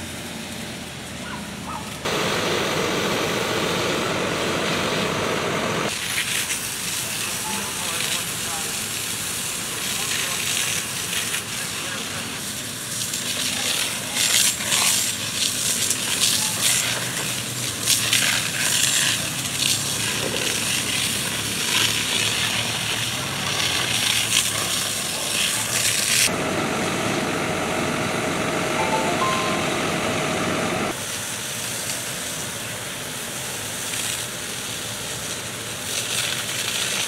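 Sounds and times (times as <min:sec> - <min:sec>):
water spraying with loud hiss: 0:00.3 - 0:27.7, 0:30.9 - 0:37.0.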